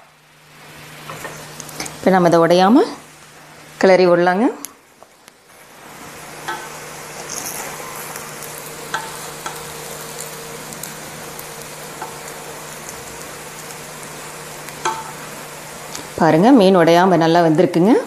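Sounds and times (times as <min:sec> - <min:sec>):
steady hiss: 0:00.0 - 0:17.2.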